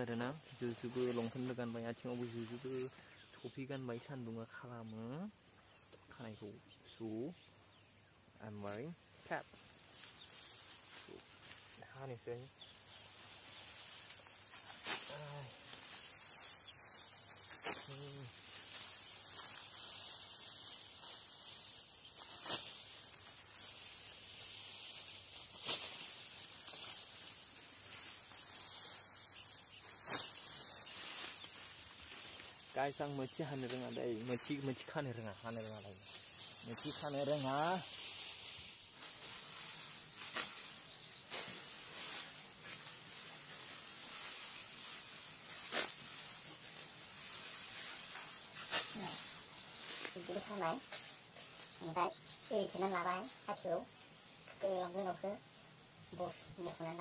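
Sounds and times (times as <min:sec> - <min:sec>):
dry straw rustling: 0:00.0 - 0:05.1, 0:08.4 - 0:57.0
sickle swishing cut: 0:14.1 - 0:16.0, 0:22.2 - 0:23.7, 0:24.4 - 0:28.1, 0:29.8 - 0:32.4, 0:35.6 - 0:51.5.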